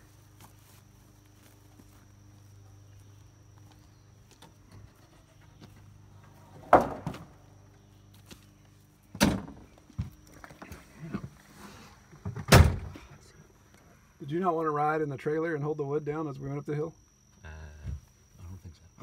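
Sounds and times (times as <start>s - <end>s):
low steady hum: 0.0s - 19.0s
board banging: 6.6s - 7.3s
wooden boards clattering: 6.6s - 7.3s.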